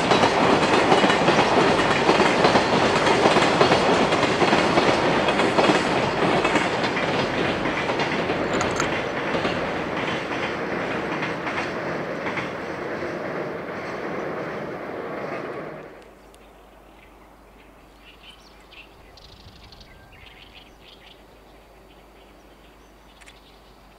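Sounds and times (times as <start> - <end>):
freight train wheels on track: 0.0 - 16.5.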